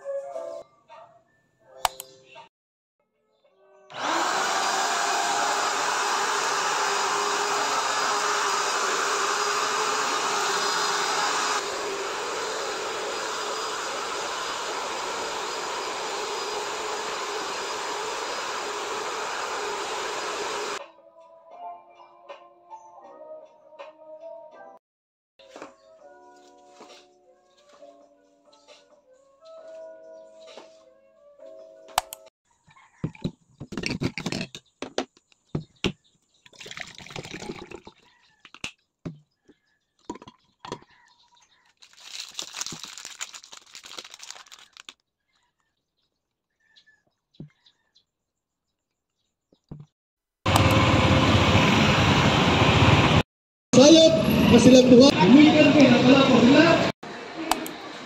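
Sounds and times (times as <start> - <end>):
soft music: 0.0 - 4.0, 20.8 - 24.8, 25.4 - 32.3
vacuum cleaner whirring: 3.9 - 20.8, 50.5 - 53.2, 55.1 - 58.0
juice pouring into plastic tumbler: 36.5 - 38.1, 41.8 - 44.9
paper wrapper crinkling: 41.6 - 45.0.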